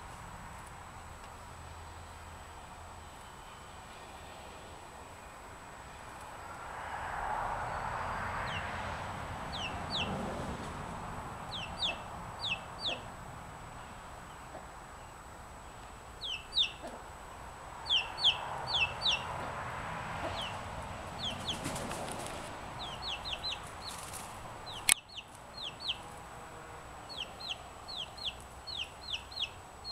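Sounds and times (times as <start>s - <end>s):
chick peeping: 9.5s - 10.2s, 11.4s - 13.1s, 16.2s - 17.1s, 17.8s - 19.6s, 20.2s - 26.2s, 27.0s - 29.9s.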